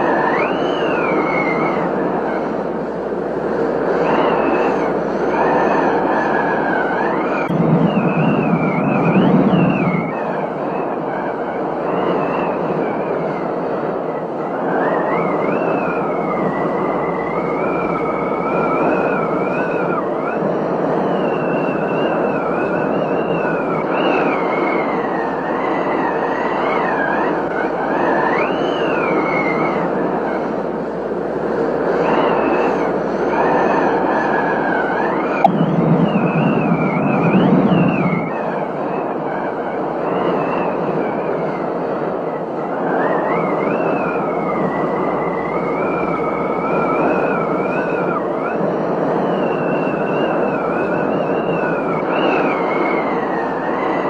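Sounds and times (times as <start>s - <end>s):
wavering whistle: 0.0s - 2.8s, 3.6s - 30.9s, 31.8s - 54.0s
wind and rain rushing: 0.0s - 54.0s
low thunder rumble: 7.2s - 11.8s, 35.4s - 38.9s.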